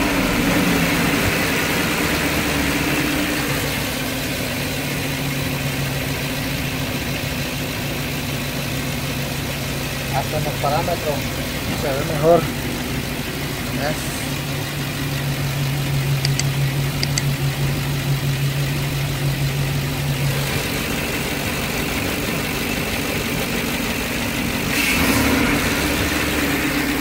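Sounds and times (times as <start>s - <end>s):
car engine idling: 0.0s - 27.0s.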